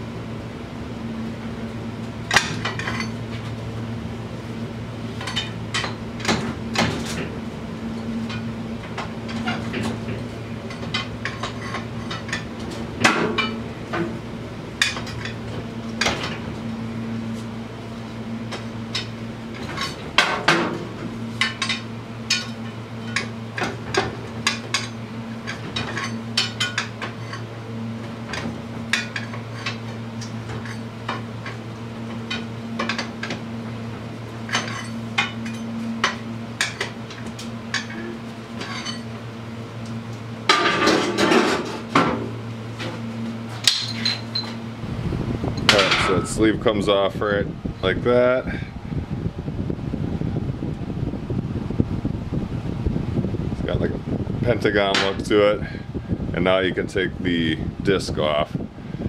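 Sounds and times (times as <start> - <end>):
steady low hum: 0.0 - 59.0
metal tools clinking on metal: 2.3 - 3.2, 34.5 - 36.9, 37.7 - 39.1, 43.6 - 44.6.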